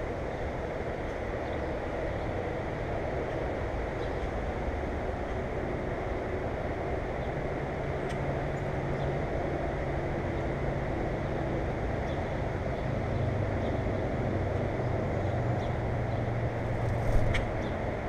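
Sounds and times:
distant motor humming: 15.8 - 18.0.

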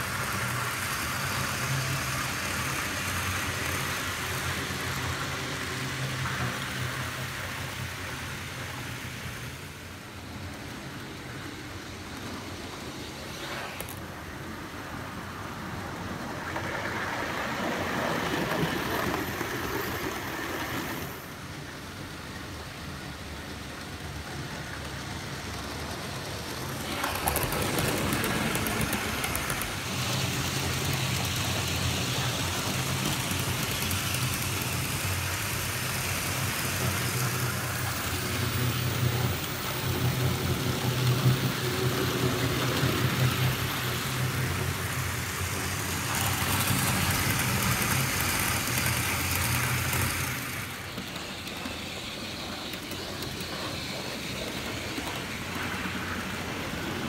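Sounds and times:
model train electric motor hum: 0.0 - 57.0
metal wheels rolling on rails: 24.6 - 57.0.

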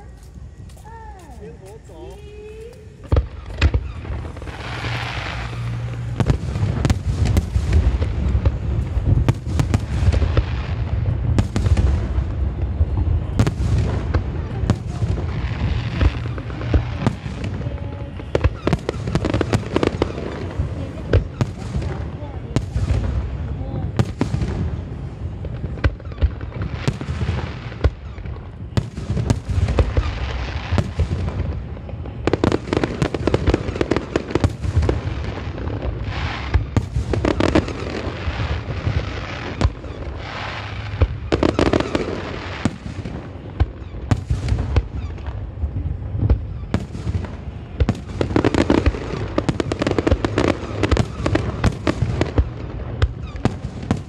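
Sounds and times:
fireworks booming: 0.0 - 54.0
fireworks crackling: 0.0 - 54.0.

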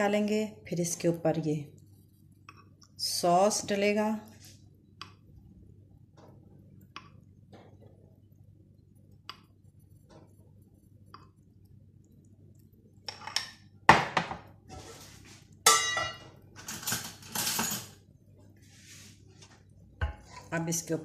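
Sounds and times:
spoon clanking on metal pan: 15.7 - 16.3.

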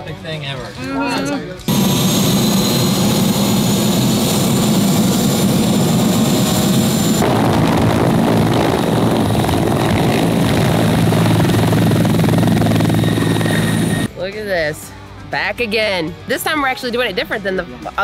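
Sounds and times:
helicopter rotor drone: 1.7 - 14.1
helicopter turbine whine: 1.7 - 14.1.

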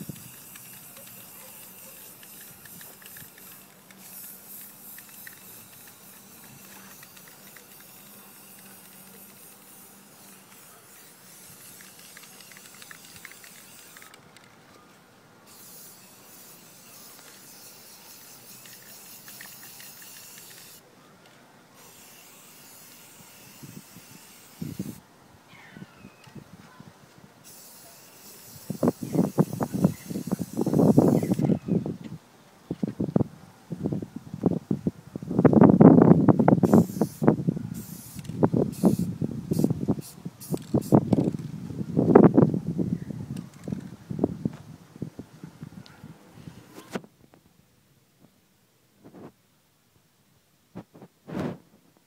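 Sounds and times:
spray-paint can hissing: 0.0 - 14.2, 15.5 - 20.8, 21.8 - 25.0, 27.4 - 31.5, 36.5 - 41.4.

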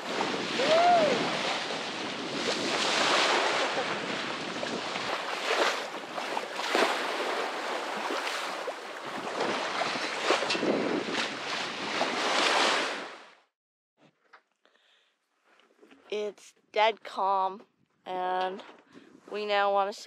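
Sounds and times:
wind on microphone: 0.0 - 13.2
water splashing against hull: 0.0 - 13.4.

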